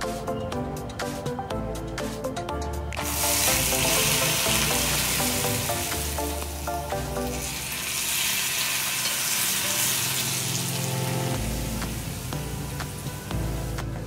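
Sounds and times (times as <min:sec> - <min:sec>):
background music: 0:00.0 - 0:14.0
hot oil sizzling: 0:03.0 - 0:14.0.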